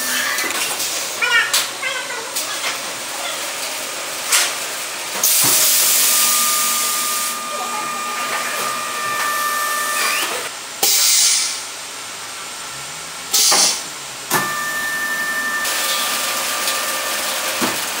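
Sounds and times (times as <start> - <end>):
packing machine running: 0.0 - 10.5, 14.3 - 18.0
bursts of hissing air: 5.2 - 7.5
faint machine whine: 5.7 - 10.5.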